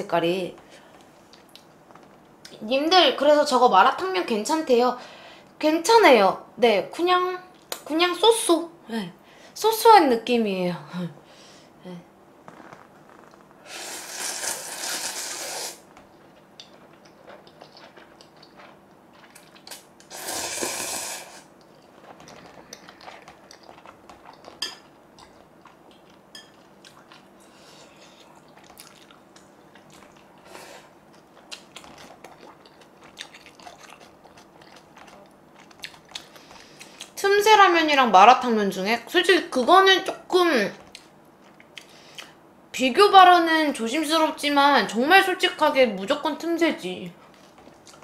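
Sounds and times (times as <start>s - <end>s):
loud slurps of noodles: 13.7s - 15.8s, 20.1s - 21.5s
chewing and crunching clicks: 16.5s - 19.9s, 21.6s - 27.3s, 28.2s - 30.4s, 31.1s - 37.2s.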